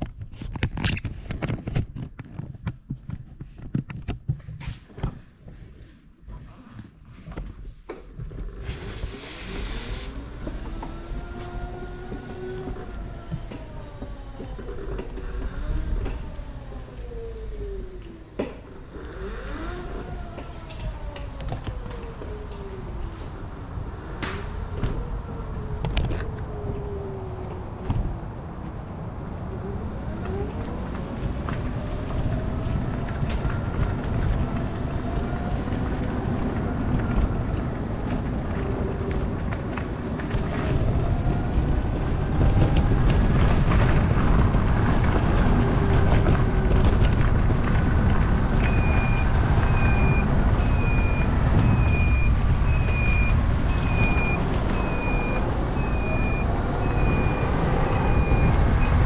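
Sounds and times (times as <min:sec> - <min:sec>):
road and wind rumble: 0:00.0 - 0:59.0
trike motor revving: 0:18.7 - 0:21.1.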